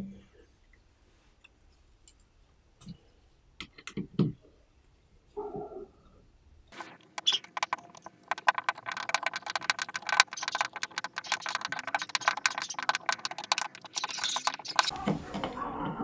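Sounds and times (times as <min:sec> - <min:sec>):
screw crackling into wood: 0:06.8 - 0:14.9.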